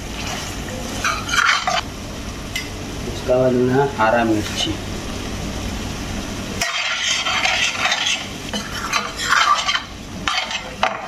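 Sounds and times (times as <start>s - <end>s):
spoon scraping a frying pan: 0.2s - 1.8s, 6.6s - 11.0s.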